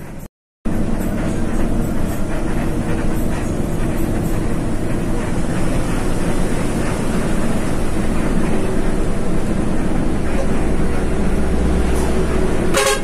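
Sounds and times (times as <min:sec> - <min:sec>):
bus engine drone and road rumble: 0:00.0 - 0:13.0.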